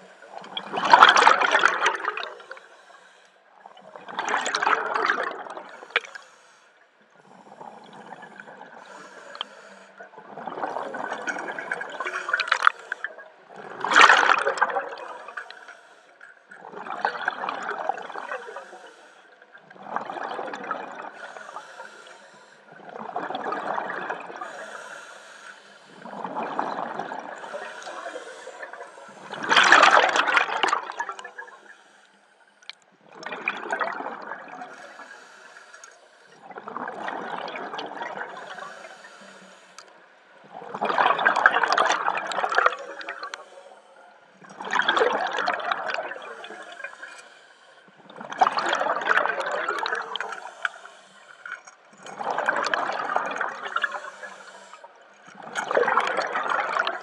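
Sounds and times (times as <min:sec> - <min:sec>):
diver breathing through regulator: 0:00.0 - 0:03.4, 0:05.7 - 0:10.1, 0:11.1 - 0:13.2, 0:14.3 - 0:16.4, 0:18.0 - 0:19.4, 0:21.0 - 0:22.9, 0:24.2 - 0:32.8, 0:34.6 - 0:36.6, 0:38.2 - 0:40.0, 0:42.6 - 0:44.2, 0:45.3 - 0:48.0, 0:49.2 - 0:55.4.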